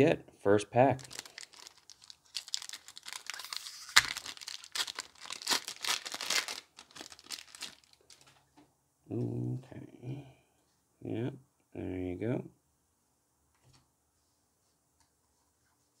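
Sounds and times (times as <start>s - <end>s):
foil wrapper ripping: 1.0s - 8.3s
foil wrapper crinkling: 1.0s - 8.4s.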